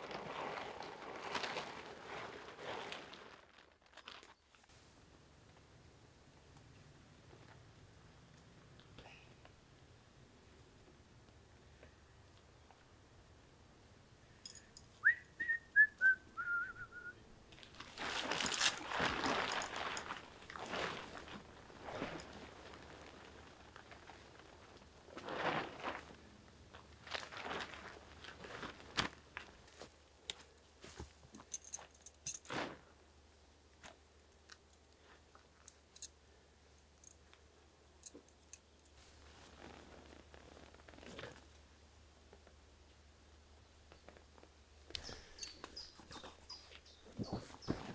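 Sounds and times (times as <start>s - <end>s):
footsteps in leaf litter: 0.0s - 4.4s, 17.7s - 26.2s
tent fabric rustling: 0.0s - 5.0s, 17.6s - 30.0s, 30.8s - 32.9s, 39.0s - 41.5s, 45.6s - 47.9s
whistled phrase: 15.0s - 17.2s.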